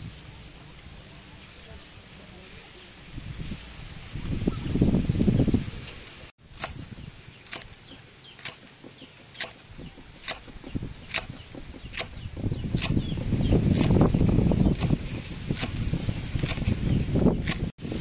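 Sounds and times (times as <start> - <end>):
cleaver chopping on wooden board: 7.5 - 13.1.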